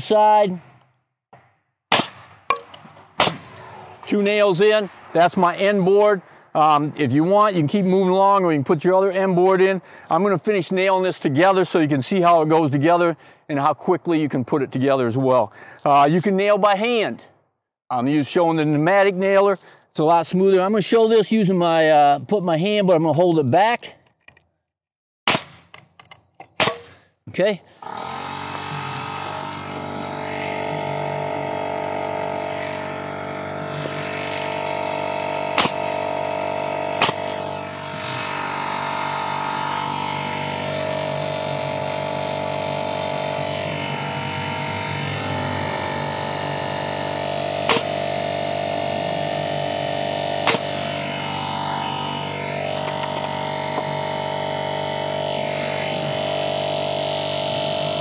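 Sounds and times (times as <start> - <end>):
nail gun firing: 1.9 - 3.8, 25.3 - 27.0, 35.5 - 36.0, 36.8 - 37.5, 47.6 - 48.1, 50.4 - 50.8
air compressor running: 27.7 - 58.0.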